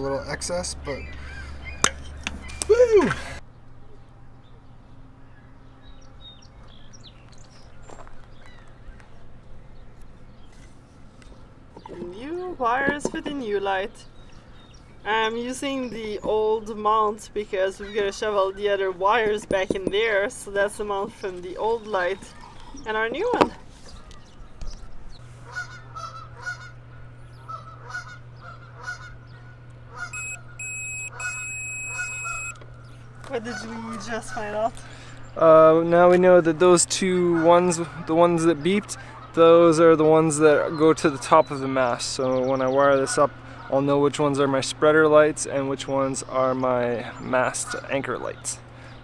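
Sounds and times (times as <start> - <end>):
faint low hum: 0.0 - 37.2
small birds chirping: 0.0 - 49.0.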